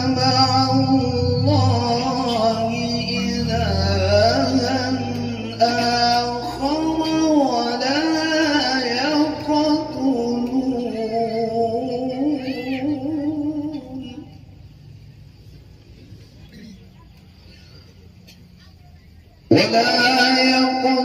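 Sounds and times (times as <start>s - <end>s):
man reciting melodically: 0.0s - 15.0s, 19.4s - 21.0s.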